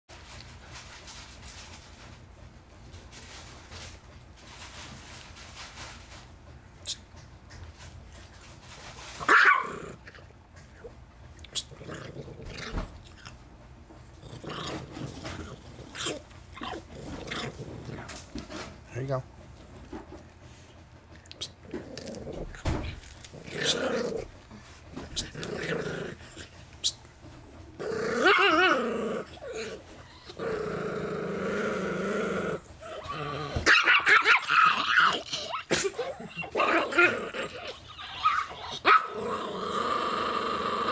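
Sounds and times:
dog growling: 9.5s - 19.1s, 21.4s - 40.9s.

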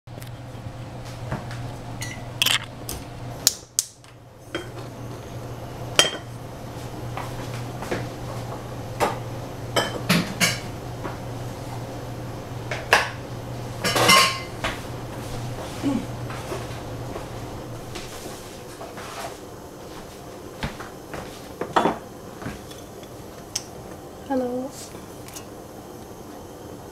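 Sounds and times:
steady low hum: 0.1s - 26.9s
dishes clattering: 2.0s - 2.7s, 9.8s - 10.6s, 13.8s - 14.5s
utensils and dishes clinking: 2.0s - 2.7s, 13.8s - 14.5s.

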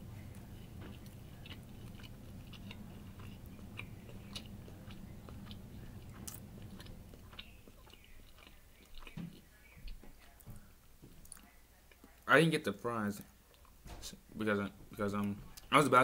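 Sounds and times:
low steady hum: 0.0s - 16.0s
person chewing food: 0.2s - 10.6s, 13.4s - 13.8s.

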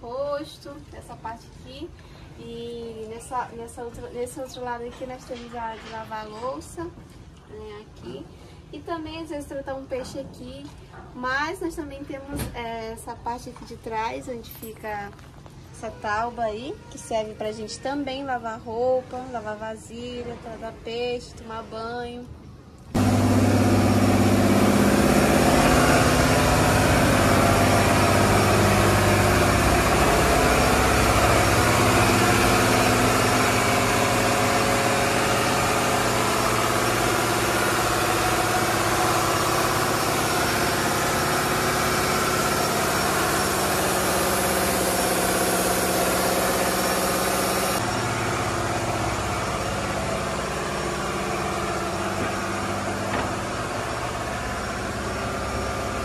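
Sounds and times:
diesel engine running loud: 23.0s - 56.0s.

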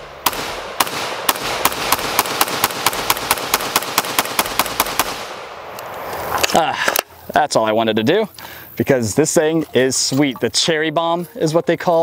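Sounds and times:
pistol firing rapid shots: 0.0s - 5.6s.

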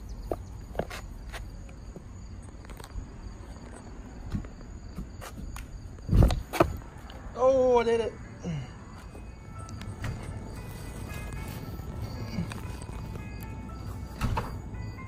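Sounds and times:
insects chirping: 0.0s - 15.0s
skateboard thumping on grass: 4.3s - 6.8s.

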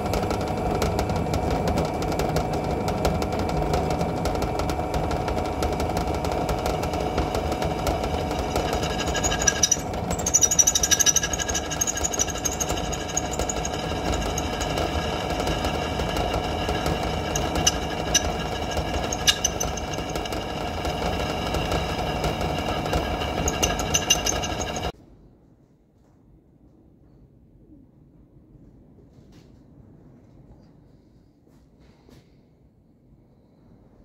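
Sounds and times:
drill press drilling metal: 0.0s - 24.9s.

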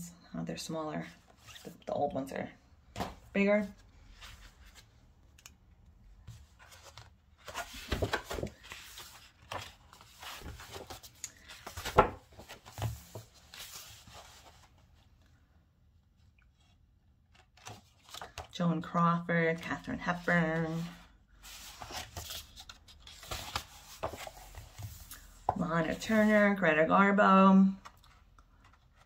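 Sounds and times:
paper pages rustling: 6.3s - 15.2s, 16.4s - 18.6s, 19.9s - 26.6s, 27.7s - 29.0s.

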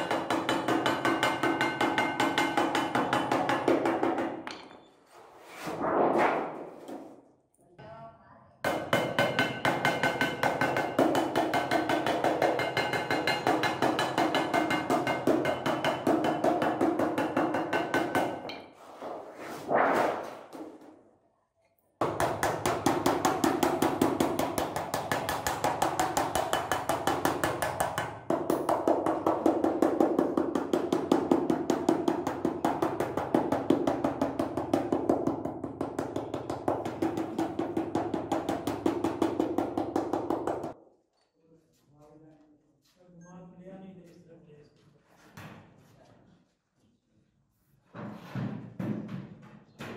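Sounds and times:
hammer striking sheet metal: 0.0s - 4.9s, 5.6s - 7.2s, 8.6s - 21.0s, 22.0s - 40.8s.

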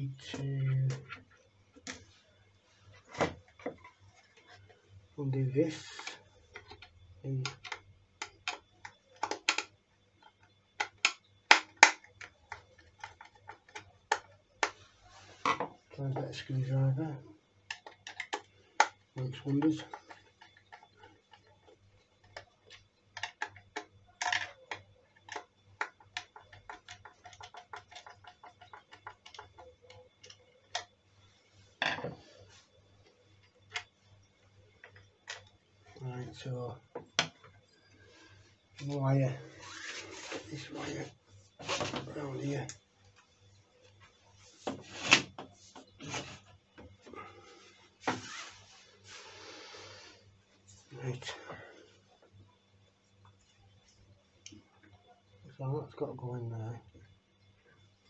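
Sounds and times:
objects knocking and clattering: 15.4s - 15.8s, 31.8s - 32.4s
clothing rustling: 39.4s - 42.2s, 47.2s - 49.4s.

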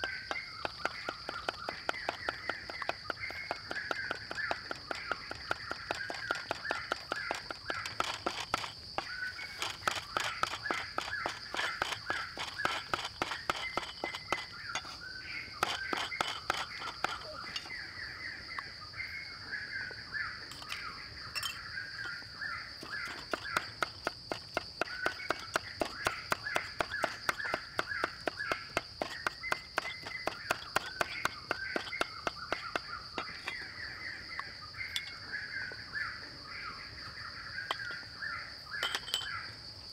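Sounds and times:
cleaver chopping on wooden board: 0.0s - 15.0s, 15.6s - 17.6s, 22.8s - 33.6s.

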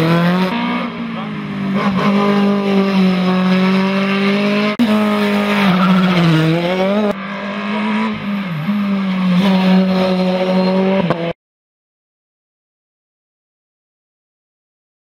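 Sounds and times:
race car engine at high revs: 0.0s - 11.4s.

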